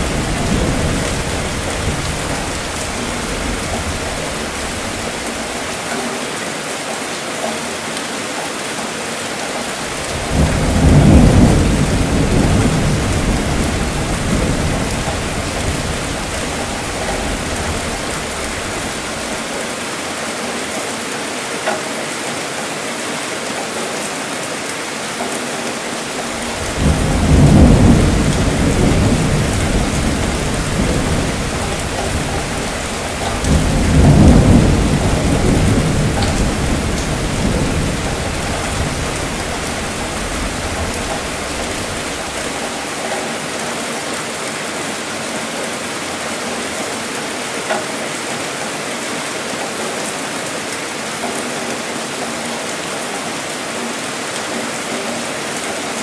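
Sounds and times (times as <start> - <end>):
rumbling thunder: 0.0 - 5.6, 10.0 - 19.5, 26.3 - 42.7
rain hissing: 0.0 - 6.0, 8.8 - 21.2, 24.9 - 47.7.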